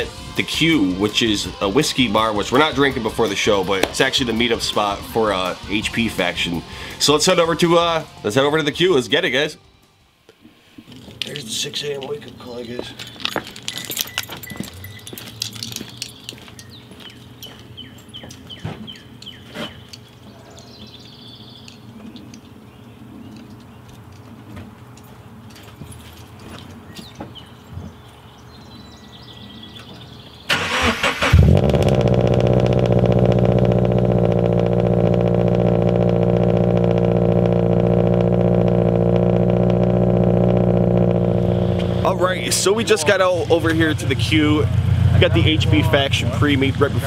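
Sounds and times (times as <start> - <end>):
songbird singing: 11.2 - 25.6, 26.6 - 31.2
car engine idling: 30.6 - 47.0
low hum: 31.3 - 47.0.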